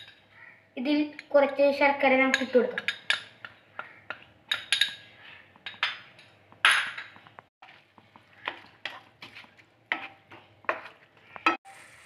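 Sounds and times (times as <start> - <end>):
spatula scraping a pan: 7.6 - 11.7.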